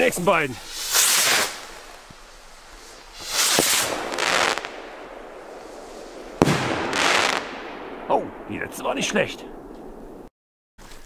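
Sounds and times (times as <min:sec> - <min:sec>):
firework hissing burst: 0:00.6 - 0:10.2
firework launch whoosh: 0:00.6 - 0:10.2
firework bang with rumble: 0:03.2 - 0:08.8.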